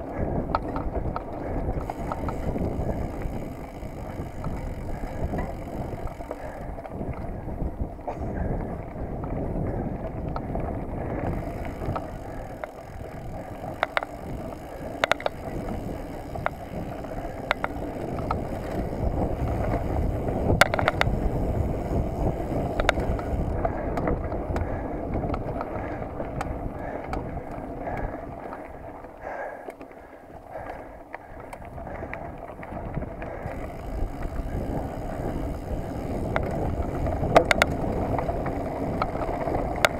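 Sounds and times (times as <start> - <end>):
bike rattling: 0.0 - 39.9
bike tyres rumbling on dirt: 0.0 - 39.9
sharp knocks and clicks: 20.5 - 21.1.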